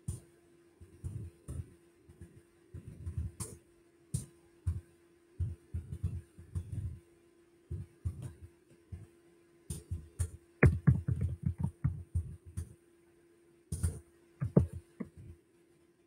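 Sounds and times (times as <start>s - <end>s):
faint steady hum: 0.0s - 16.0s
dull low thumps: 9.7s - 12.7s, 13.8s - 15.3s
light taps and knocks: 9.7s - 12.7s, 13.8s - 15.4s.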